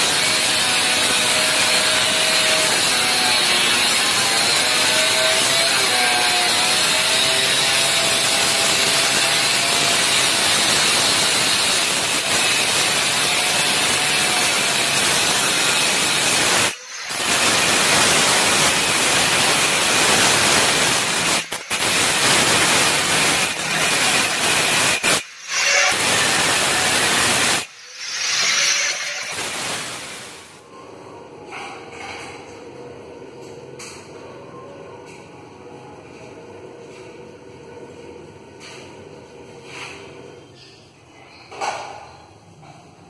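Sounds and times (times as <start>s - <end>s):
angle grinder cutting stone: 0.0s - 30.6s.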